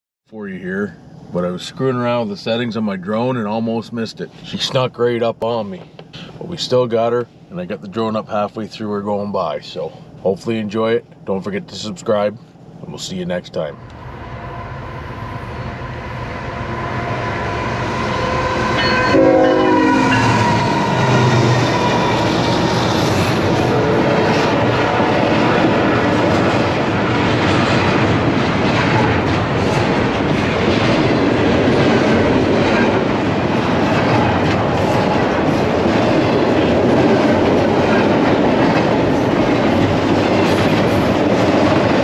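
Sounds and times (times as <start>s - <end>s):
freight train rumble: 0.4s - 42.0s
train horn: 16.3s - 22.7s
wheels clacking over rail joints: 20.4s - 42.0s.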